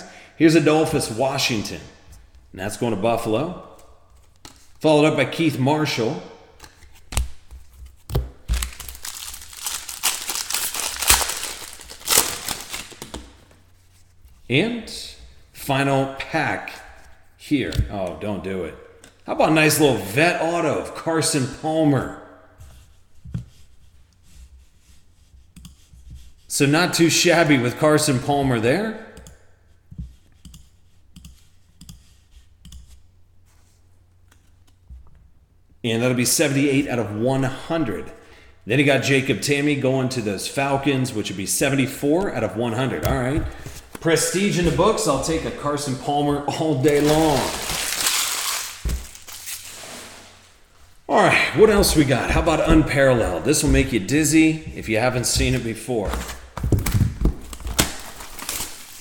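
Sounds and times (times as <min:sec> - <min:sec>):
plastic wrapper crinkling: 0:08.4 - 0:13.4, 0:46.8 - 0:50.1, 0:55.2 - 0:59.0.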